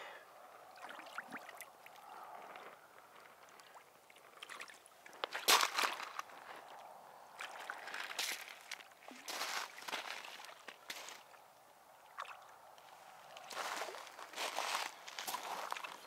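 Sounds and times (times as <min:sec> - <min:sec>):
shallow water splashing: 0:00.7 - 0:02.3.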